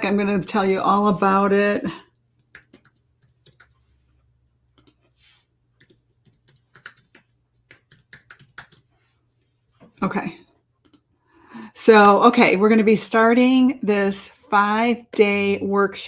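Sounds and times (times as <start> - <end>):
computer keyboard keystrokes: 2.1 - 3.8, 4.8 - 5.0, 5.8 - 8.9, 10.8 - 11.1.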